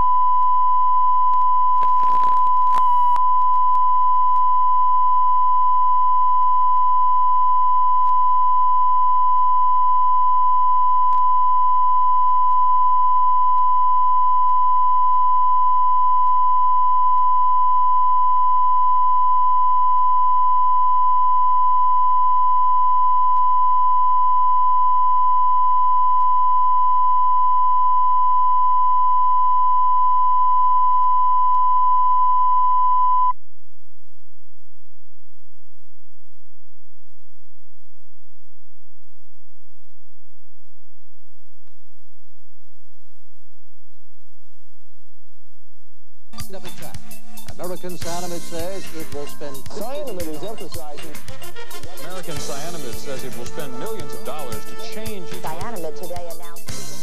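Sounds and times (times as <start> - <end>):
steady high reference tone: 46.4 - 51.2.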